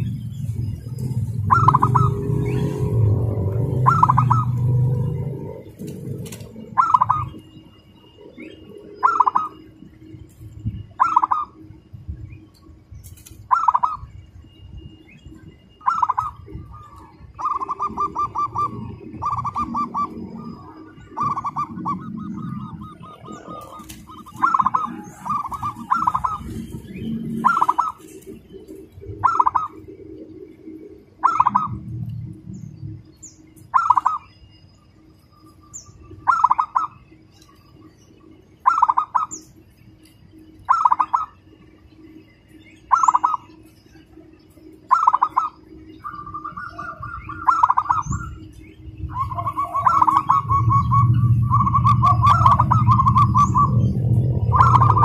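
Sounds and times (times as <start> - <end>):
dove cooing: 0.0 - 9.8, 11.0 - 11.7, 13.4 - 14.2, 15.7 - 32.2, 33.6 - 34.3, 36.2 - 37.0, 38.6 - 39.4, 40.7 - 41.5, 42.9 - 44.2, 44.8 - 55.0
small birds chirping: 0.0 - 55.0.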